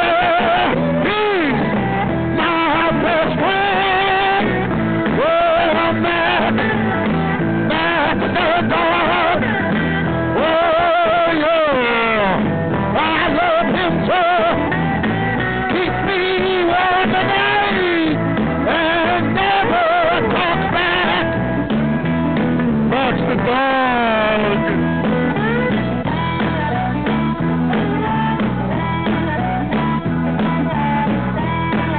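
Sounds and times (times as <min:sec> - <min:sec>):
bending lead guitar line: 0:00.0 - 0:31.9
blues-rock band music: 0:00.0 - 0:31.9.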